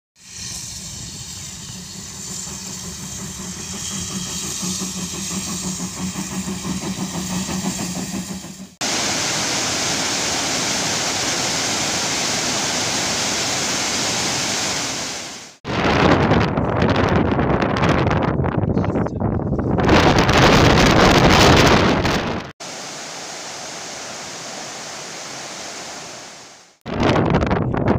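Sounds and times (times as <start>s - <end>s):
steam locomotive chuffing: 0.2s - 14.7s
steady rushing noise: 0.6s - 17.0s, 19.8s - 27.3s.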